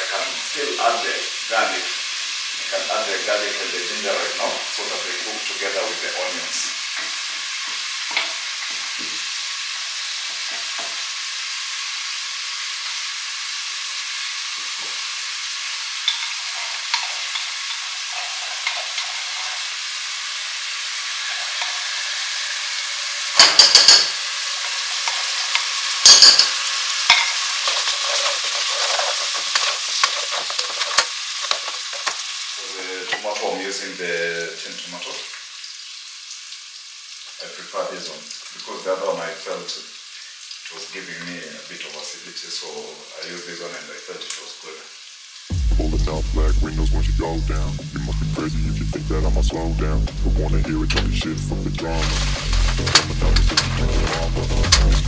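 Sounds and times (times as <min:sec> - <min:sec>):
onions sizzling in a pan: 0:00.0 - 0:46.2, 0:51.5 - 0:55.0
utensil stirring and scraping: 0:16.0 - 0:19.9, 0:23.4 - 0:32.2, 0:51.8 - 0:55.0.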